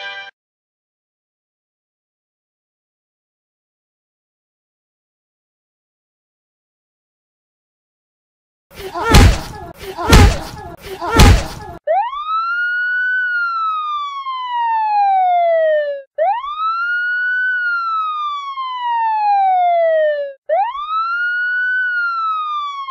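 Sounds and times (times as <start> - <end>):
wailing siren: 11.6 - 22.9.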